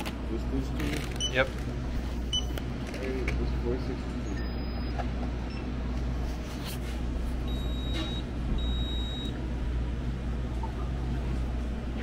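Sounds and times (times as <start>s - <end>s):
low steady hum: 0.0s - 12.0s
high electronic beeps: 4.3s - 5.6s, 7.5s - 9.3s.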